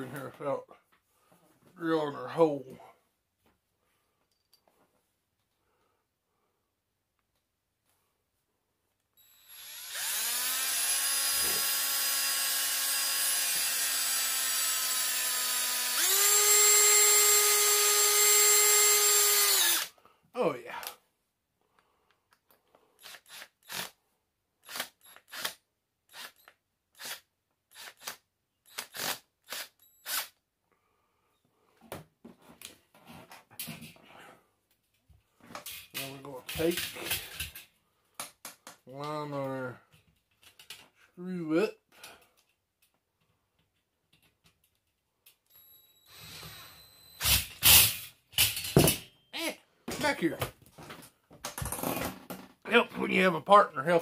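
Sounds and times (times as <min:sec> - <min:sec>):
cordless drill driving screw into metal: 0:09.2 - 0:19.9, 0:24.6 - 0:30.4, 0:46.1 - 0:49.0.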